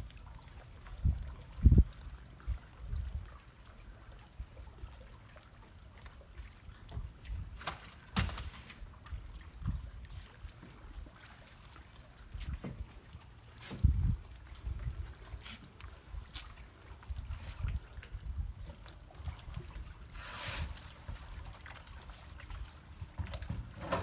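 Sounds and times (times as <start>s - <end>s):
faint water lapping: 0.0s - 24.0s
wind rumbling on microphone: 0.8s - 3.4s, 6.7s - 7.6s, 9.1s - 11.0s, 13.7s - 21.6s.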